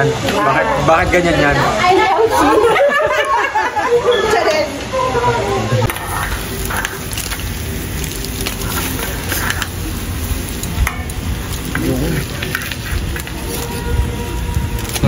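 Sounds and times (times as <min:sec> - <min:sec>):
fish sizzling on a grill: 0:00.0 - 0:15.0
tongs scraping foil and grate: 0:05.9 - 0:15.0.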